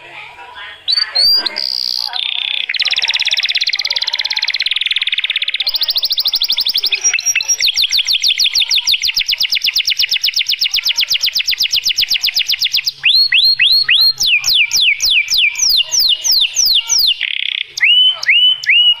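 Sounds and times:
canary singing trills: 0.7s - 19.0s.

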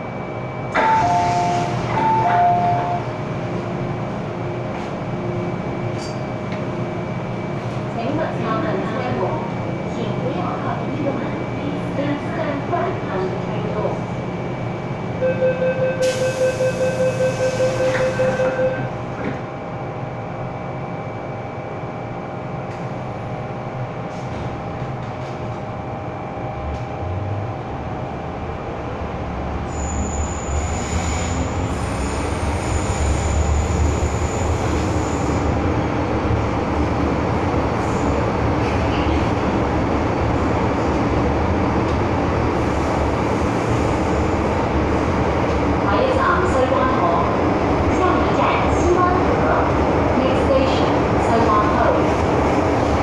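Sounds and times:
train running hum and rumble: 0.0s - 53.0s
door closing warning beeps: 15.3s - 18.9s.

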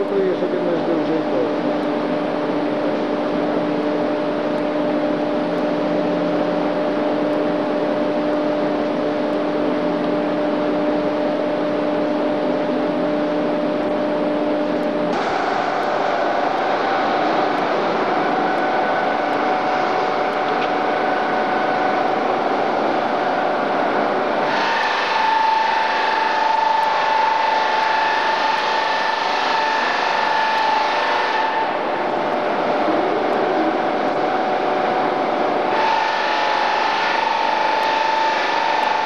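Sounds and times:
polishing machine humming: 14.6s - 39.0s.

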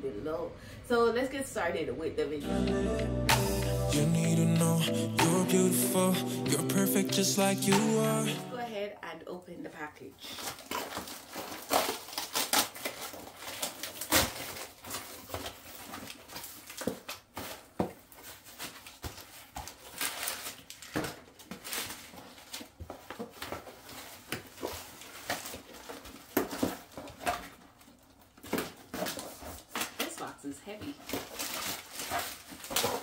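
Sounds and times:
packing paper crinkling and rustling: 10.2s - 33.0s.

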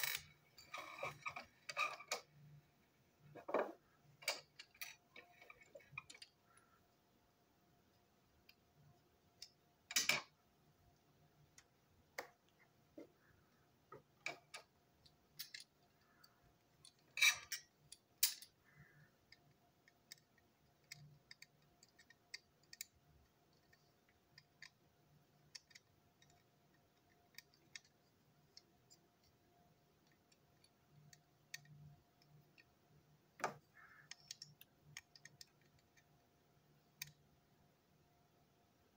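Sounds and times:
plastic toy parts clicking: 0.0s - 2.3s, 14.3s - 29.4s, 30.0s - 32.7s, 33.4s - 36.2s.

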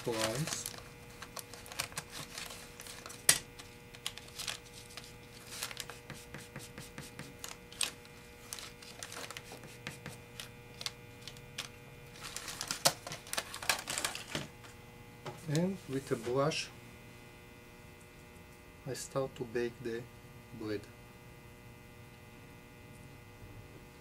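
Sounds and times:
steady electrical hum: 0.0s - 24.0s
pastel scratching on paper: 4.9s - 7.6s, 9.4s - 10.2s.

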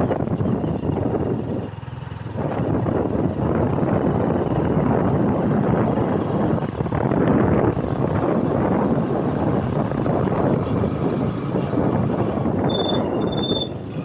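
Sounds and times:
motorcycle engine: 0.0s - 14.0s
wind rushing on microphone: 0.0s - 14.0s.

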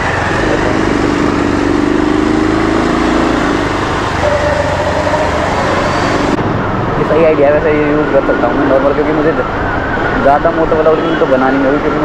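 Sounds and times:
motorcycle engine accelerating: 0.1s - 6.5s.

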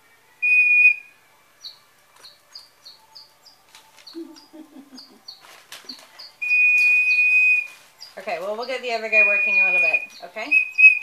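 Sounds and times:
whistle: 0.4s - 1.1s, 6.4s - 7.8s, 9.2s - 11.0s
electronic toy bird chirping: 0.4s - 11.0s.

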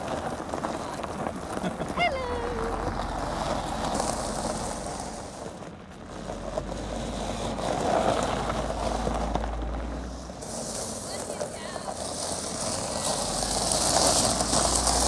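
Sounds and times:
tyres crunching on gravel: 0.0s - 15.0s.

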